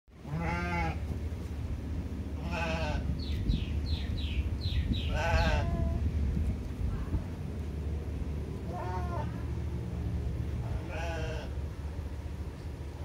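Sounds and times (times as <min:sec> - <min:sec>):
steady low rumble: 0:00.1 - 0:13.0
animal bleating call: 0:00.2 - 0:01.0, 0:02.4 - 0:03.1, 0:05.0 - 0:06.0, 0:08.6 - 0:09.5, 0:10.7 - 0:11.6.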